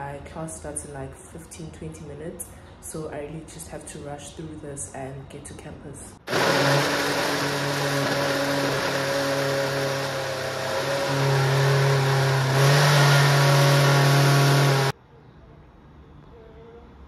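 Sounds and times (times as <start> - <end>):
blender motor humming: 6.3 - 15.0.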